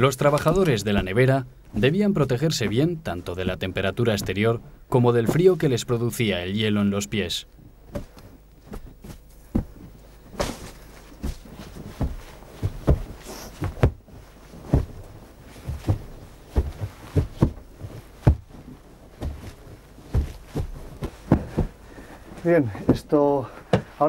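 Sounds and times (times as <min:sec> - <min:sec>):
rammers thumping snow: 0:07.9 - 0:23.1.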